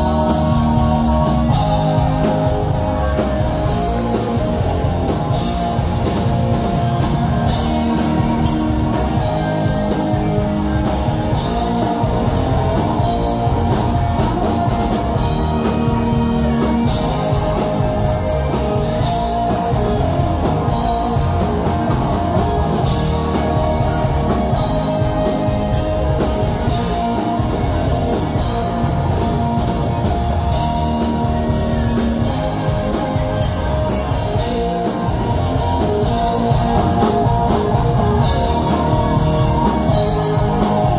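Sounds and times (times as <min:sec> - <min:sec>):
drum kit: 0:00.0 - 0:40.9
electric guitars: 0:00.0 - 0:40.9.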